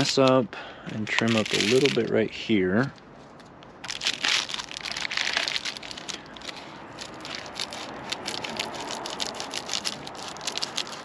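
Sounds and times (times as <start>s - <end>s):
foil insulation crinkling: 1.0s - 2.1s, 3.8s - 11.0s.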